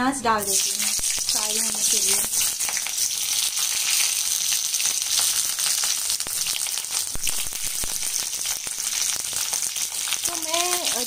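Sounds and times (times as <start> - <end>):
onion sizzling in oil: 0.2 - 11.0.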